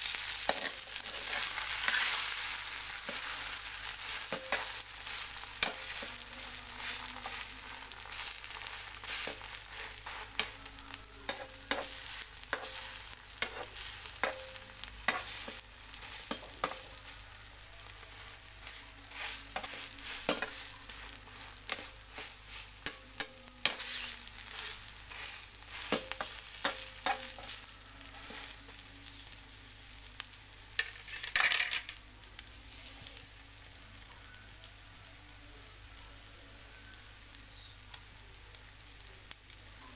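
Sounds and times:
omelette sizzling in frying pan: 0.0s - 39.9s
spatula scraping and tapping pan: 0.4s - 2.3s, 3.0s - 17.2s, 17.8s - 28.5s.

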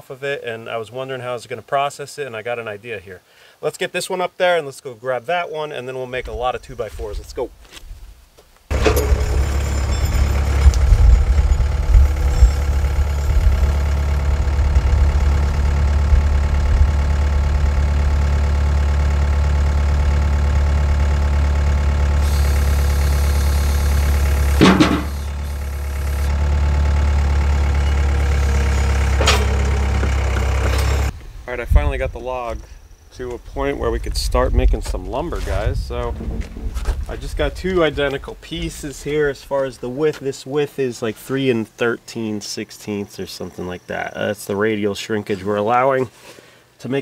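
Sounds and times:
diesel engine running: 8.7s - 32.7s, 35.4s - 39.2s
sharp knock: 24.6s - 25.3s.

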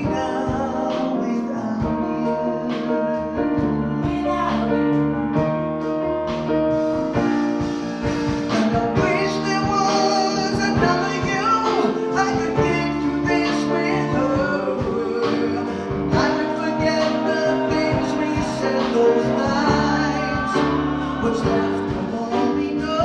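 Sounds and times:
person singing: 0.0s - 5.5s, 8.1s - 23.0s
drums: 0.0s - 23.0s
grand piano: 0.0s - 23.0s
upright bass: 0.0s - 23.0s
backing vocals: 8.3s - 23.0s.

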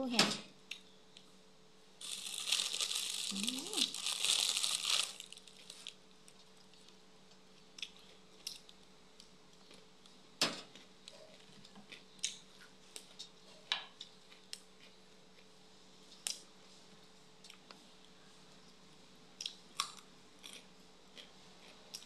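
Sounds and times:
faint steady hum: 0.0s - 22.0s
person chewing food: 19.4s - 22.0s.

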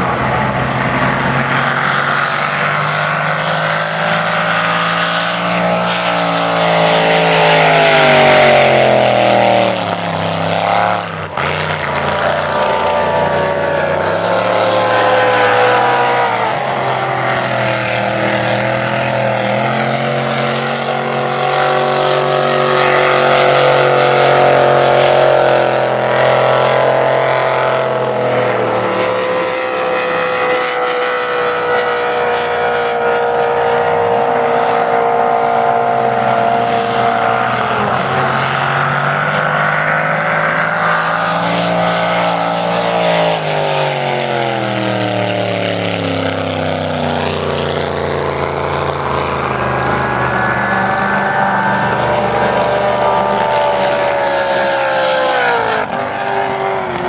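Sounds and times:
race boat engine at full throttle: 0.0s - 57.0s.

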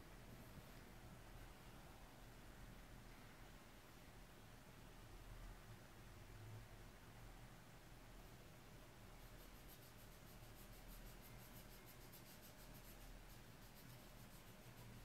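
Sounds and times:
faint hiss: 0.0s - 15.0s
fast scratchy ticking: 9.2s - 15.0s.

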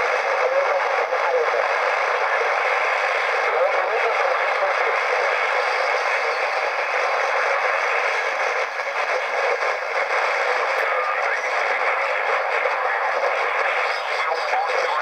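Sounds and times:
radio static hiss: 0.0s - 15.0s.

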